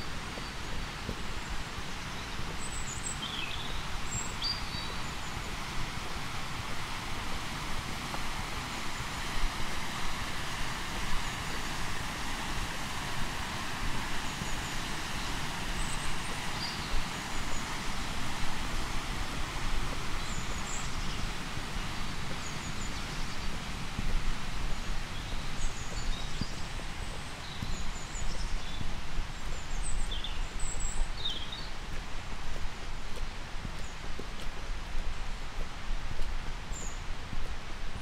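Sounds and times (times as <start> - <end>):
footsteps on road: 0.0 - 8.4, 16.6 - 38.0
outdoor hiss: 0.0 - 38.0.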